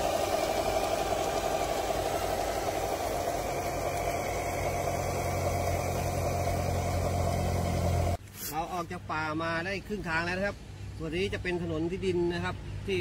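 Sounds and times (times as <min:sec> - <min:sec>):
model crawler drive humming: 0:00.0 - 0:08.2.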